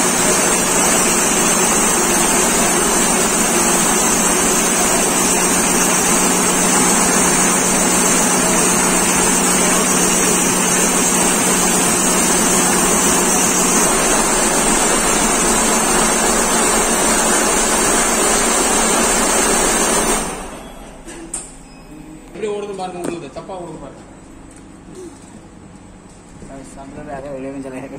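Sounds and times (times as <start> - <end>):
quilting machine stitching: 0.0 - 20.6.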